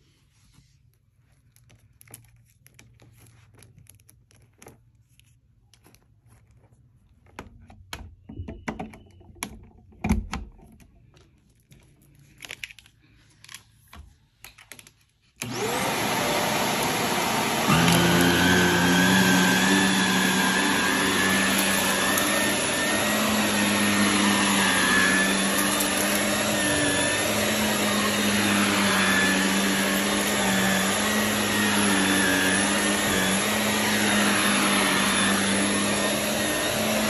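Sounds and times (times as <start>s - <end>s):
vacuum cleaner motor running: 15.4s - 37.0s.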